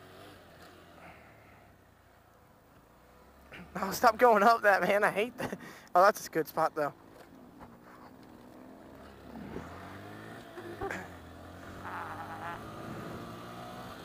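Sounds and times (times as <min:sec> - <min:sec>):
motorcycle engine running: 0:08.4 - 0:13.5.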